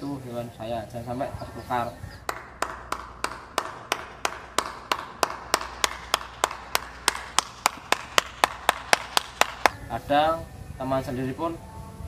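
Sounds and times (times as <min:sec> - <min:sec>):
hand clapping: 0:02.2 - 0:09.8.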